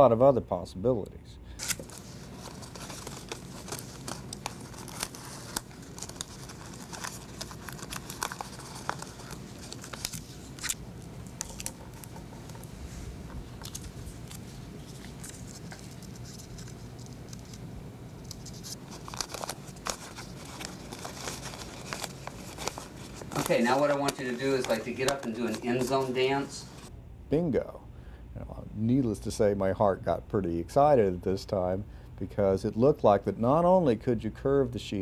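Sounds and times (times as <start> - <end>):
low room hum: 0.0 - 35.0
paper rustling and crinkling: 1.6 - 26.8.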